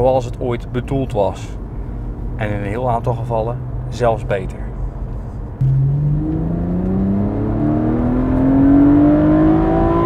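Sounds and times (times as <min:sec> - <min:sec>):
car engine accelerating: 0:05.4 - 0:10.0.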